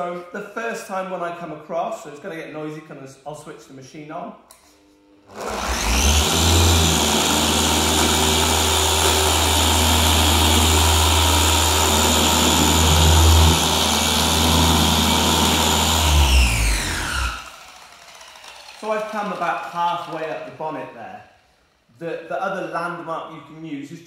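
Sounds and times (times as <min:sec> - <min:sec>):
polisher motor humming: 0:05.3 - 0:19.4.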